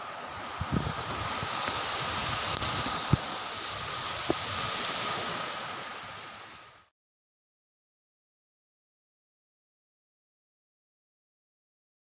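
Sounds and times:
wind on microphone: 0:00.0 - 0:06.8
surf on a sandy beach: 0:00.0 - 0:06.9.

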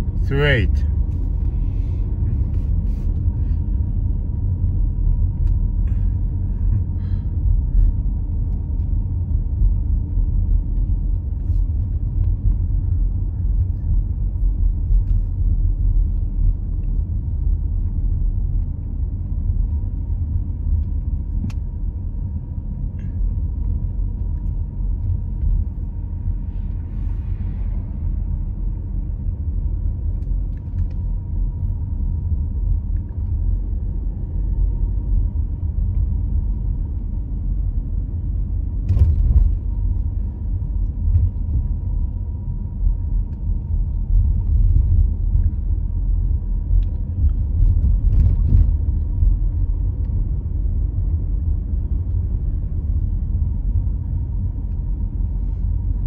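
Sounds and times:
car engine and tyre rumble: 0:00.0 - 0:56.0.

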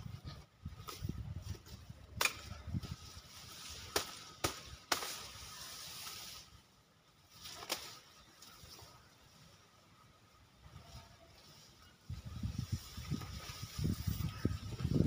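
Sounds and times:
grass rustling: 0:00.0 - 0:15.0
sickle cracking through grass stalks: 0:02.2 - 0:06.4, 0:07.4 - 0:08.5.

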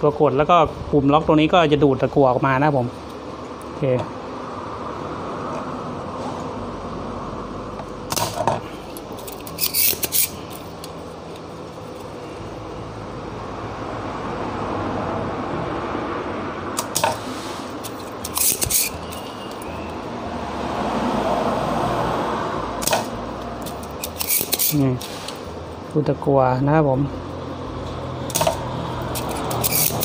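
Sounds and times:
desoldering pump clicking: 0:07.8 - 0:12.2, 0:17.8 - 0:20.0, 0:22.8 - 0:26.0, 0:28.2 - 0:30.0.

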